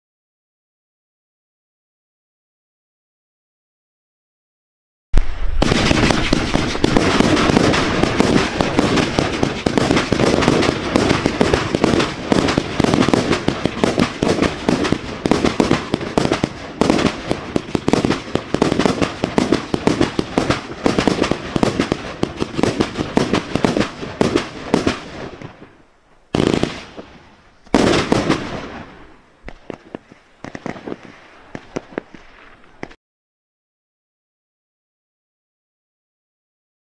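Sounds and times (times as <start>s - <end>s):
firework cake launches and bursts: 5.2s - 25.7s, 26.4s - 33.0s.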